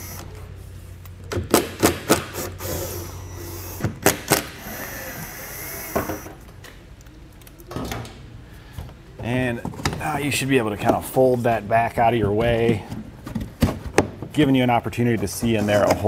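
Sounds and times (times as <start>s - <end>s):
cordless screwdriver whirring: 4.6s - 6.3s.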